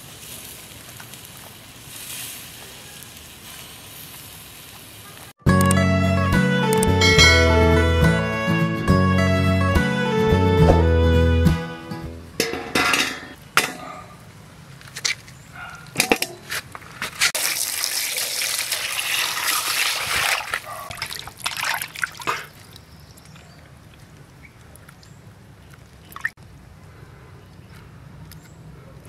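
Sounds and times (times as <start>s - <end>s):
water splashing in steel basin: 17.4s - 22.9s
water dripping: 17.4s - 25.1s, 25.7s - 26.4s.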